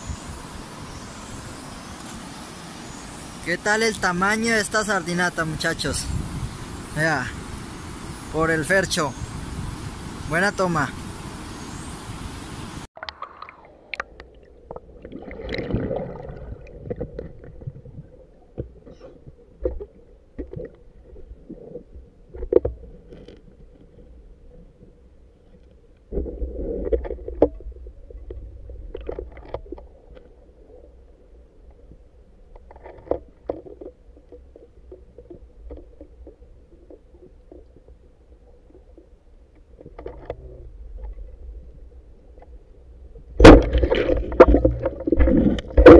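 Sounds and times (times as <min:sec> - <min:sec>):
water rushing and gurgling: 0:00.0 - 0:25.4, 0:26.1 - 0:45.9
underwater water rumble: 0:12.9 - 0:45.9
underwater clicks and knocks: 0:16.6 - 0:21.3, 0:22.3 - 0:24.0, 0:25.6 - 0:30.4, 0:32.5 - 0:38.0, 0:38.7 - 0:41.4, 0:43.4 - 0:45.9.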